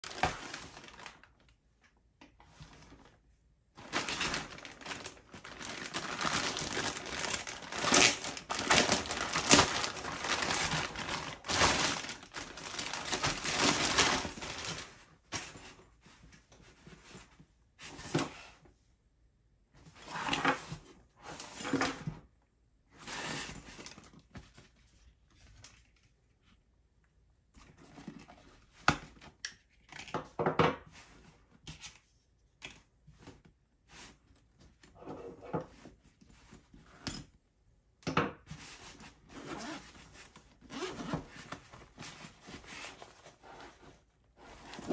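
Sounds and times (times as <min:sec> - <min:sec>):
plastic packaging crinkling: 0:00.0 - 0:01.5, 0:03.8 - 0:15.0.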